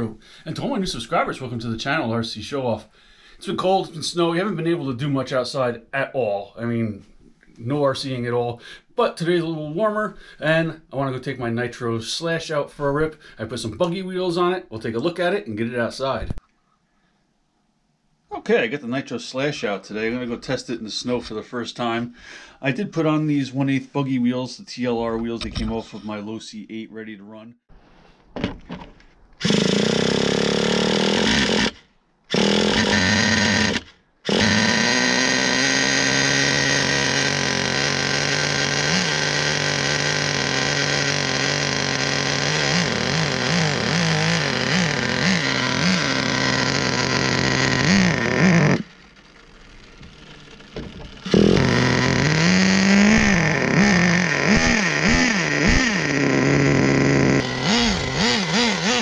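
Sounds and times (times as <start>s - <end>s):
small engine revving: 29.4s - 59.0s.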